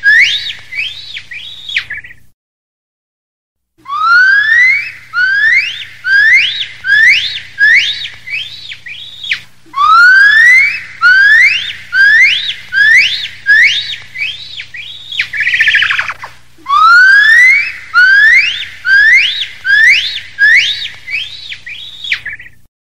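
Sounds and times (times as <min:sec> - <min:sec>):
gibbon whooping: 0:00.0 - 0:02.0, 0:03.8 - 0:22.5
warbling trill: 0:15.4 - 0:19.3.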